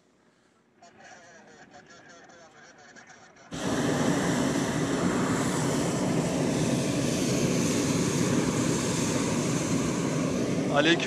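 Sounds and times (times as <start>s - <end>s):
propane burner roaring: 3.5s - 11.0s.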